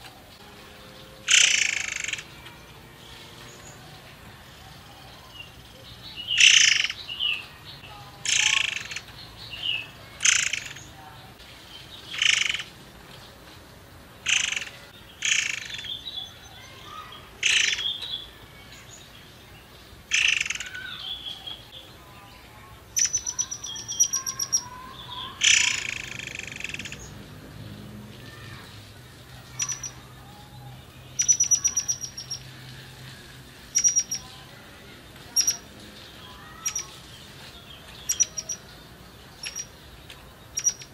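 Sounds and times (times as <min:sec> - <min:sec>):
bird singing harsh phrases: 0:00.2 - 0:12.8, 0:14.1 - 0:27.2, 0:28.2 - 0:40.9
bird ticking trills: 0:00.8 - 0:02.6, 0:05.2 - 0:11.0, 0:11.8 - 0:12.8, 0:14.2 - 0:19.1, 0:19.7 - 0:21.9, 0:22.9 - 0:27.2, 0:28.3 - 0:40.9.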